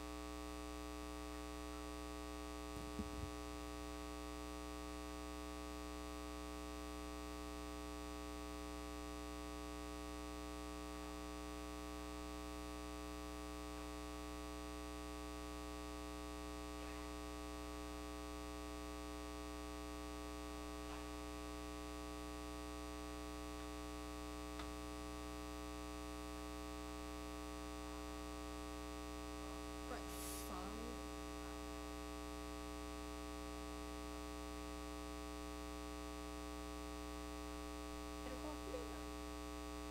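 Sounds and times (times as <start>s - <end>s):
electrical mains hum: 0.0s - 39.9s
faint voice-like sound: 16.8s - 17.2s.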